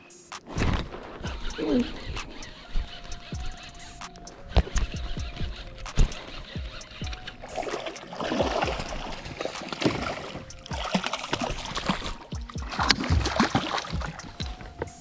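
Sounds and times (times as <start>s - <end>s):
background music: 0.0s - 15.0s
fish splashing in water: 4.5s - 14.8s.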